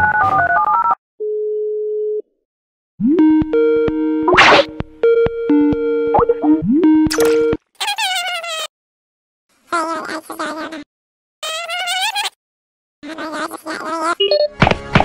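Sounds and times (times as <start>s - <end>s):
short electronic tune: 6.1s - 7.6s.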